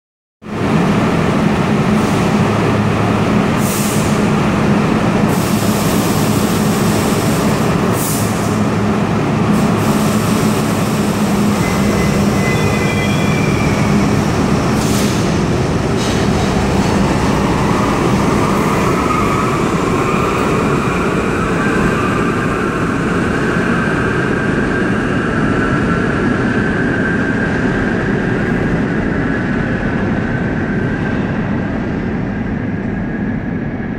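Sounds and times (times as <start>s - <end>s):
subway train wheels rumbling: 0.4s - 33.9s
high-pitched squeals: 10.3s - 22.4s.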